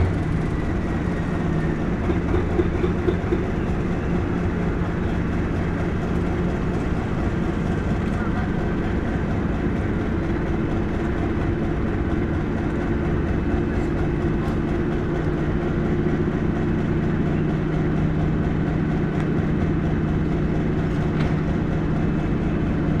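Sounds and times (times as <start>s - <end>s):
diesel locomotive engine running: 0.0s - 23.0s.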